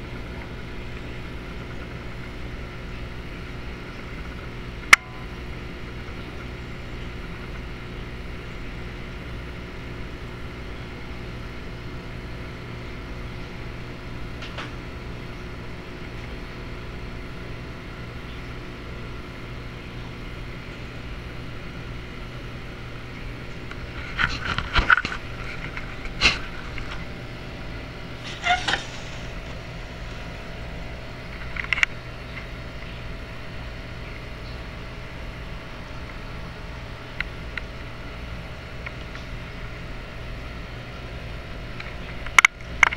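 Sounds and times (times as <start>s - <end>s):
aquarium equipment humming: 0.0s - 42.9s.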